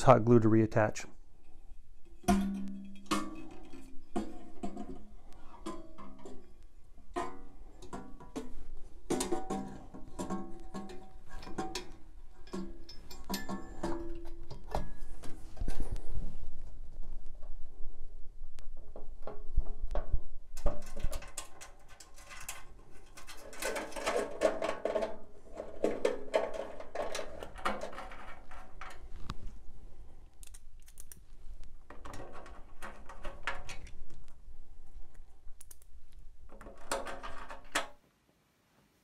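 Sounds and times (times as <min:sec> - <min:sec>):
screws and tools rattling on metal case: 0:02.2 - 0:16.0, 0:20.6 - 0:29.3, 0:31.8 - 0:34.0, 0:36.5 - 0:38.0.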